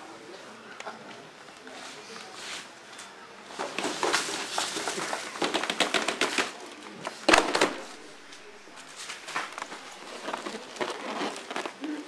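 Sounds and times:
plastic tray knock: 7.3s - 8.6s
dry leaves rustling: 7.3s - 11.7s.

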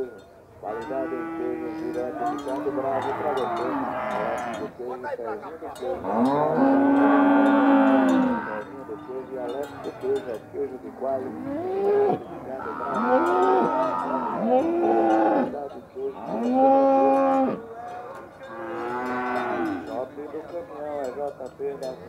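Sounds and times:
cattle mooing: 0.7s - 4.7s, 6.0s - 9.0s, 11.2s - 15.6s, 16.2s - 17.6s, 18.5s - 19.9s.

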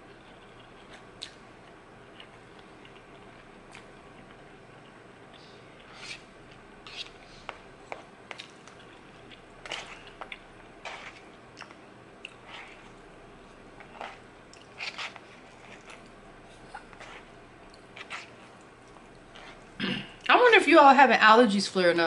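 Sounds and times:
wet chewing and slurping: 8.3s - 13.0s, 13.8s - 19.8s.

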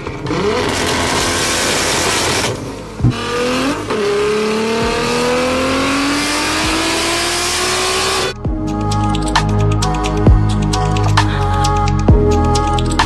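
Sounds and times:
car engine revving hard: 0.0s - 8.4s.

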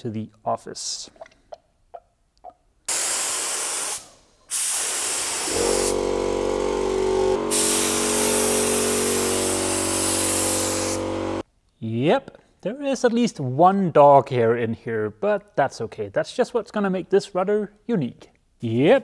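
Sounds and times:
spray gun hissing: 2.9s - 11.4s
steady machine hum: 5.5s - 11.4s.

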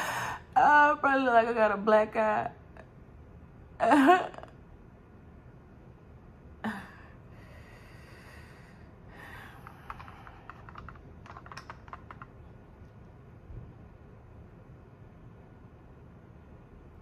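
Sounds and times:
brush clicking in plastic palette: 9.6s - 12.4s.

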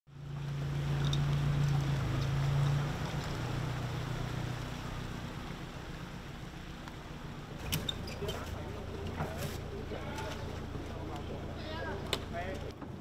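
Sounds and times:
boat engine humming: 0.1s - 13.0s
water rushing: 0.2s - 12.7s.

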